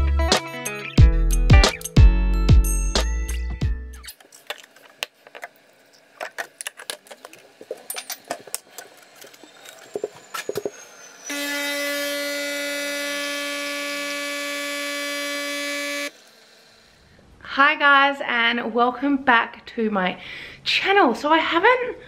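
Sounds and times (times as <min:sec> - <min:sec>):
coffee machine pump buzzing: 0:07.3 - 0:17.1.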